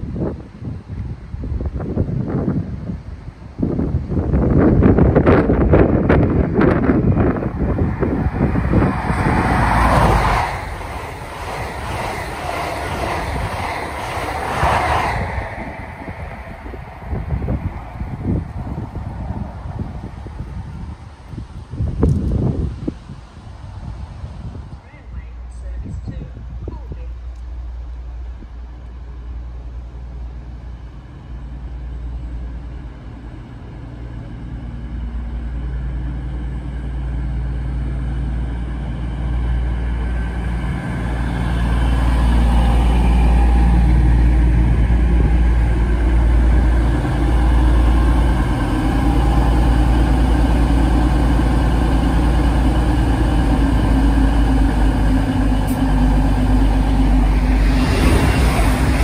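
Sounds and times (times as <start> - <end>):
diesel train engines droning: 0.0 - 59.0
wheels on rails: 5.1 - 19.6.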